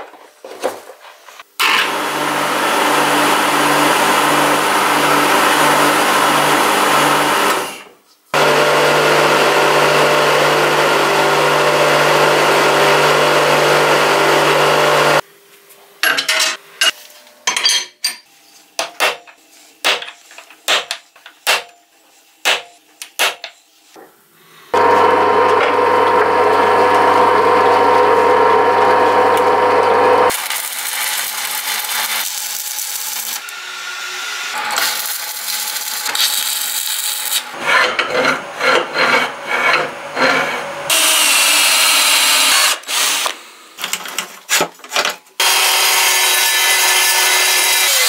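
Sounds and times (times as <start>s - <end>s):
electric power tool running: 1.6s - 7.8s, 8.4s - 15.2s, 24.8s - 37.6s, 40.9s - 43.4s, 45.4s - 48.0s.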